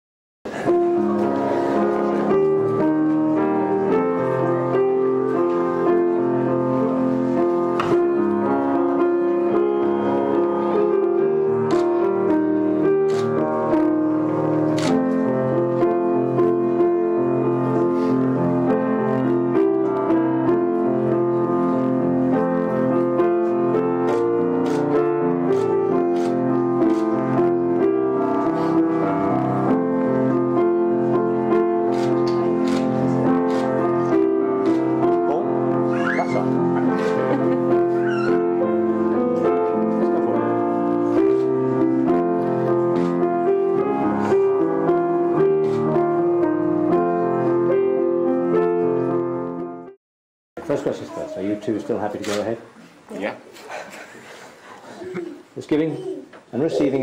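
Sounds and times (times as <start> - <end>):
slow piano chords: 0.5 - 50.0.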